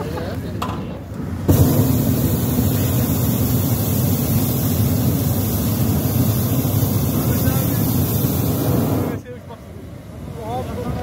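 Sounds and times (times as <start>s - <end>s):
propane burner rushing: 1.2s - 9.4s.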